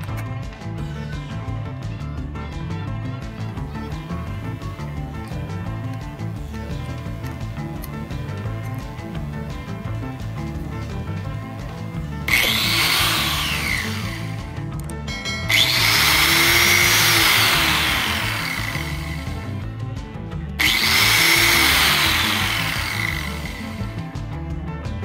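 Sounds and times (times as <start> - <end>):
angle grinder high whine: 3.3 - 19.8, 20.6 - 24.1.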